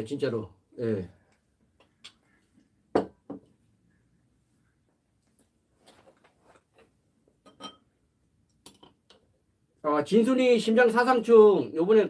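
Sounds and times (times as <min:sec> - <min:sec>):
spoon clinking on ceramic bowls: 0:07.4 - 0:07.9.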